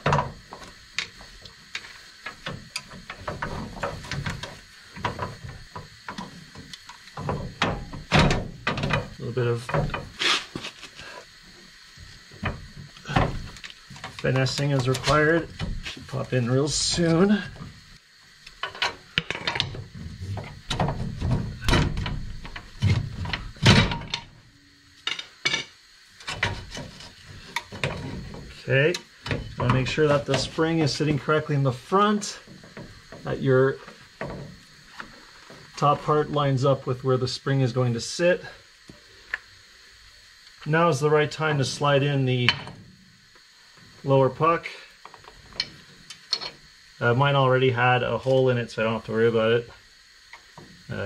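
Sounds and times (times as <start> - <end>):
metal clunks and scrapes: 0.0 - 11.2, 18.6 - 24.4, 25.0 - 31.3.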